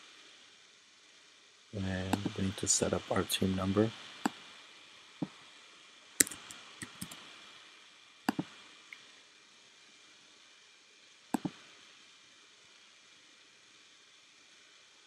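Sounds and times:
faint steady hiss: 0.0 - 15.0
mouse and keyboard clicks: 6.2 - 7.2.

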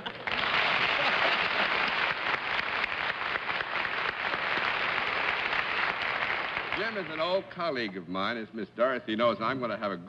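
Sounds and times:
audience applauding: 0.0 - 7.5.

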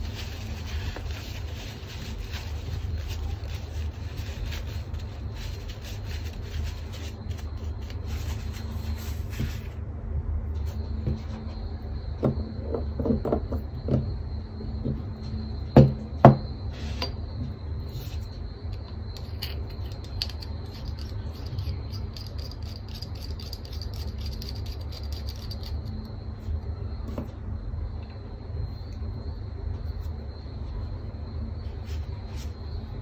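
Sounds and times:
thin high whine: 0.0 - 13.0.

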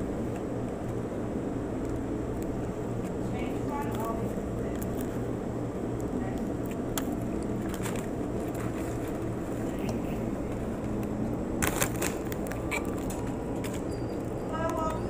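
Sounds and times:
steady low hum: 0.0 - 15.0
light clicks and clatter: 1.8 - 5.3.

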